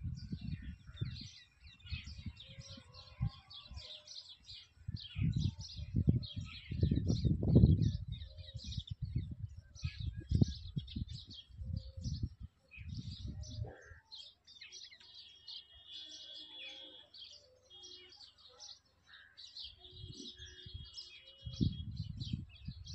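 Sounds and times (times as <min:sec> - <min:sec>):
low rumble on microphone: 0:00.0 - 0:03.4, 0:04.9 - 0:13.9, 0:20.0 - 0:22.9
small birds chirping: 0:00.0 - 0:22.9.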